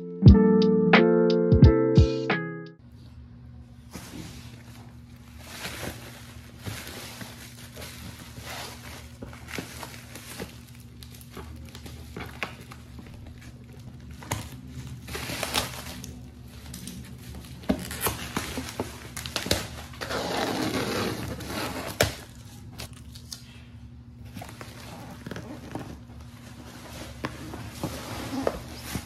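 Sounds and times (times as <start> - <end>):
bubble wrap crinkling: 3.9 - 23.6.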